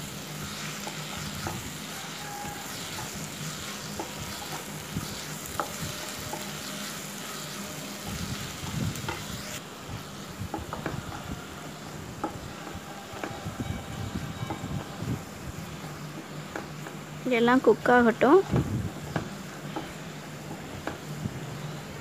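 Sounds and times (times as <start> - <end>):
vegetables sizzling in oil: 0.0 - 22.0
spatula scraping and tapping pan: 0.6 - 1.7, 2.4 - 7.7.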